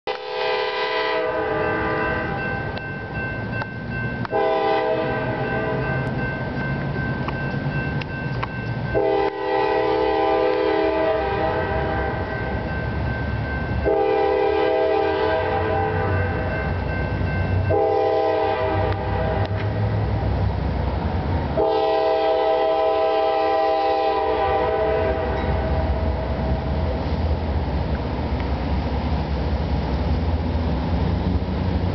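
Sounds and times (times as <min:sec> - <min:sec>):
locomotive air horn blasts: 0:00.1 - 0:02.5, 0:04.2 - 0:05.9, 0:08.9 - 0:12.5, 0:13.8 - 0:16.5, 0:17.6 - 0:19.8, 0:21.6 - 0:26.4.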